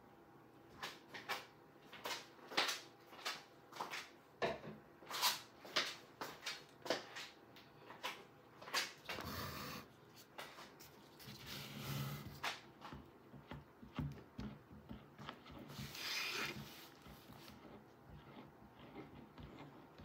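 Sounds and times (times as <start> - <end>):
spatula scraping plastic jug: 9.0 - 20.0.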